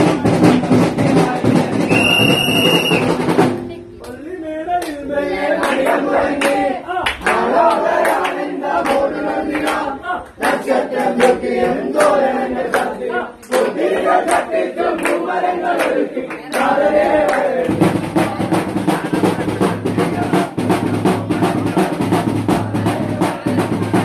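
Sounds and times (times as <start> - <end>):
drum strikes: 0.0 - 4.0, 17.5 - 24.0
men singing a carol: 4.4 - 23.8.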